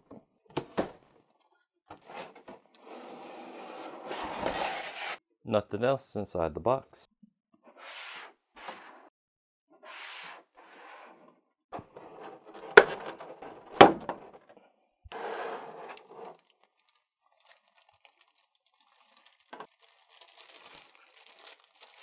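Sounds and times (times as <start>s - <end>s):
plastic wrap rustling and crinkling: 15.9s - 22.0s.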